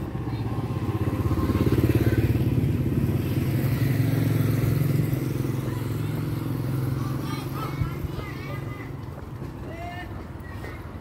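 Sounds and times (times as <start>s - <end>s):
motorbike engine running: 0.0s - 7.6s.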